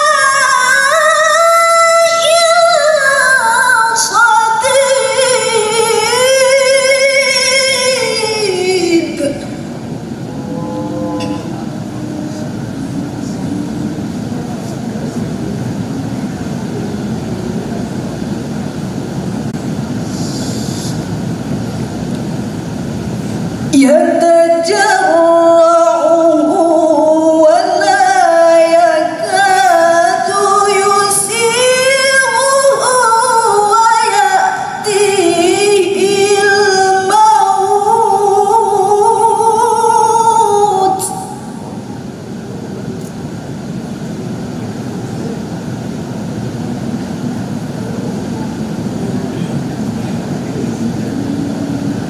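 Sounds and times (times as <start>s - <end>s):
woman reciting melodically: 0.0s - 10.6s, 23.7s - 41.9s
background hum of hall: 0.0s - 52.0s.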